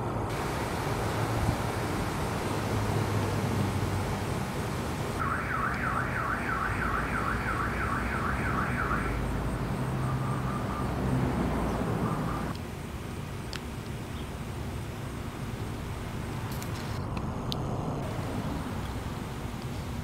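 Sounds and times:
short steady alarm tones: 0.3 - 11.2
car alarm warbling: 3.9 - 11.1, 11.9 - 12.5.

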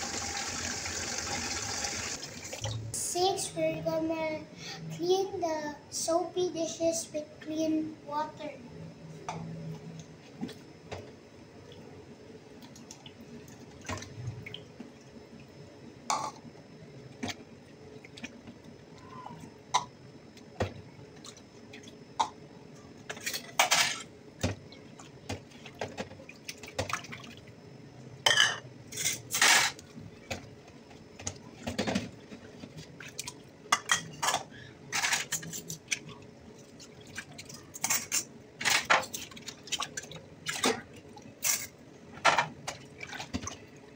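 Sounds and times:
dishes clinking and clattering: 23.1 - 24.1, 28.3 - 29.8, 33.8 - 35.6.

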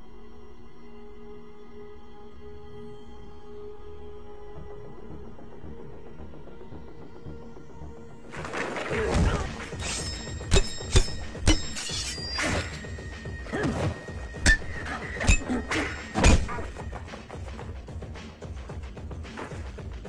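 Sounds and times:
film score: 0.0 - 20.0
swishing swings: 8.4 - 17.0
sharp hits and thuds: 9.2 - 12.8, 13.6 - 17.4.

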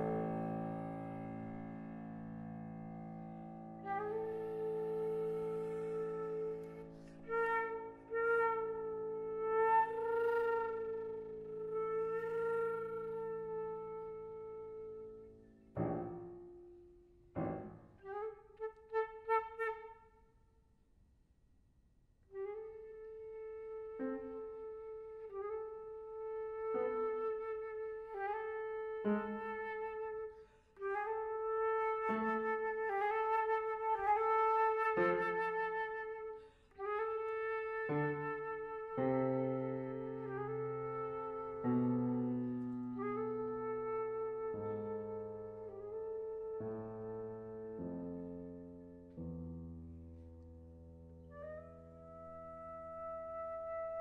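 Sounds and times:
piano chords: 0.0 - 19.3, 30.9 - 54.0
flute held note: 3.8 - 15.4
flute holding a note: 3.8 - 16.2, 17.4 - 20.2, 22.3 - 48.5, 51.3 - 54.0.

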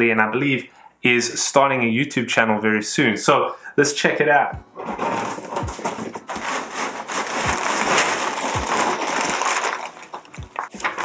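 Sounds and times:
cardboard crackling and rustling: 4.7 - 11.0.

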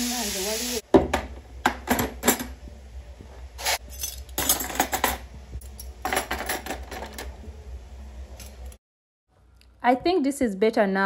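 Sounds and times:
low steady hum: 1.3 - 10.3
metal utensils and dishes clinking: 3.6 - 7.3.

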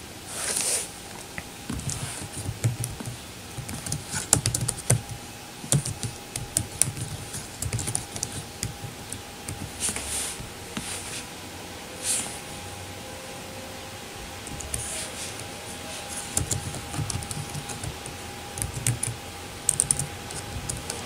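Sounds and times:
computer keyboard typing: 1.7 - 10.5, 14.4 - 21.0.

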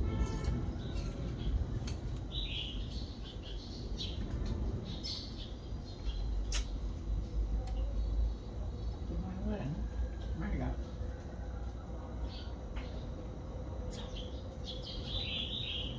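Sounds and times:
birds chirping: 0.0 - 15.9
sharp click: 6.5 - 6.8.

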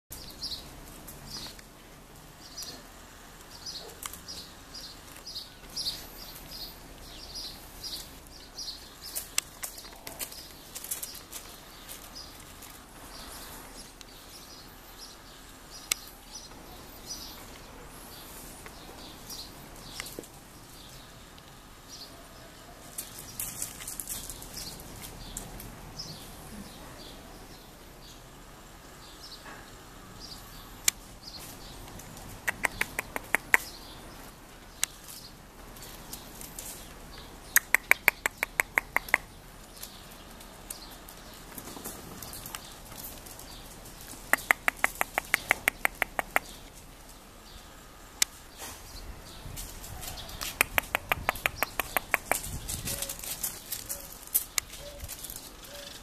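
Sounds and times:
puppy paws scuffling on gravel: 0.1 - 27.4, 30.3 - 56.0
sharp clicks: 15.8 - 16.1, 31.9 - 33.8, 37.5 - 39.3, 44.2 - 46.8, 50.4 - 52.6
puppies chirping: 32.4 - 34.0, 37.4 - 39.9, 43.5 - 46.7, 50.2 - 56.0.

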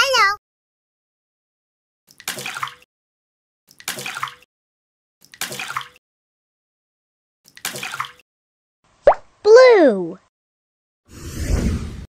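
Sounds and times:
toys splashing into water: 2.1 - 2.9, 3.7 - 4.5, 5.2 - 6.0, 7.5 - 8.2.

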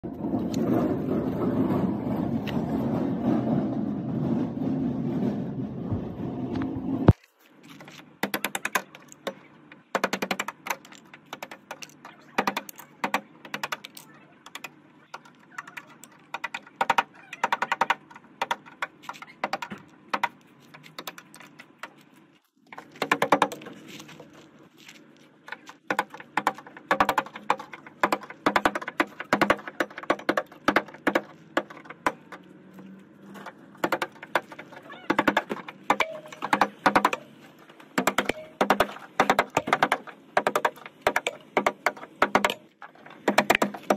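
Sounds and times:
paint cracking and flaking: 10.8 - 41.1.

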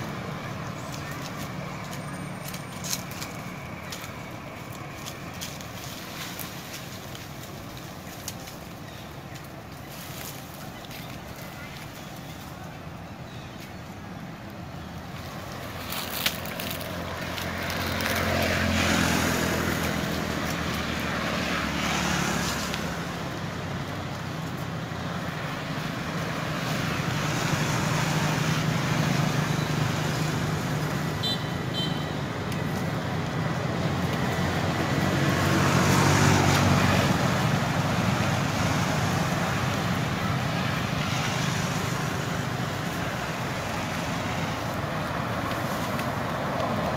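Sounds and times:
vehicles passing: 0.0 - 46.9.

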